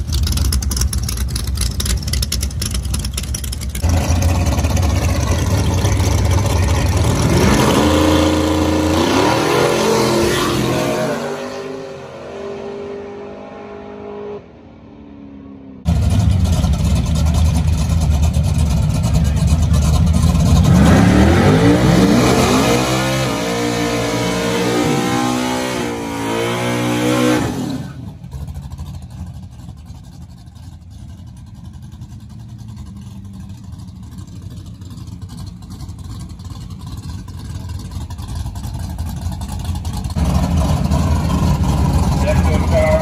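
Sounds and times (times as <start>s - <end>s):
low engine rumble: 0.0s - 7.6s, 14.4s - 22.1s, 28.0s - 43.0s
spinning tyres: 0.0s - 9.4s, 26.8s - 43.0s
car engine revving hard: 3.8s - 14.6s, 20.3s - 28.1s.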